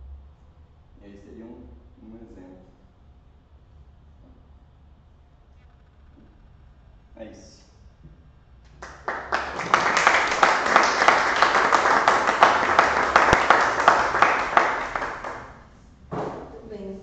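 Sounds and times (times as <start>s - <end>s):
audience applauding: 8.7s - 15.7s.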